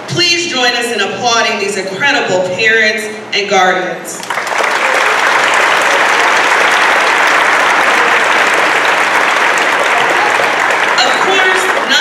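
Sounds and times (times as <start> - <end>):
audience applause: 4.2 - 12.0.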